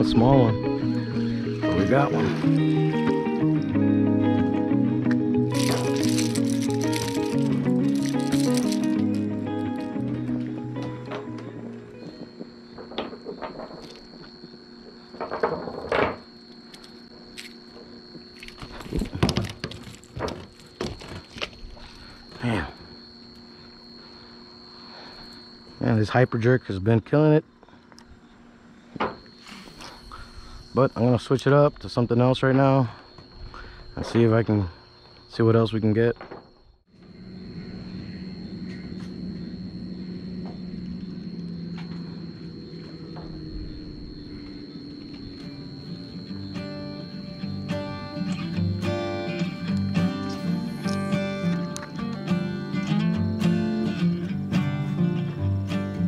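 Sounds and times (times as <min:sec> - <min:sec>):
low mechanical hum: 0:00.0 - 0:56.0
high thin whine: 0:29.0 - 0:32.3, 0:36.9 - 0:56.0.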